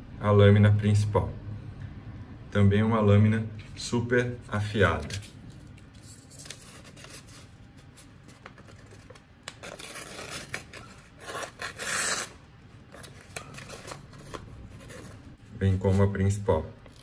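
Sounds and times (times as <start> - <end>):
paper rustling: 4.8 - 12.3
knife slicing paper: 9.6 - 12.4.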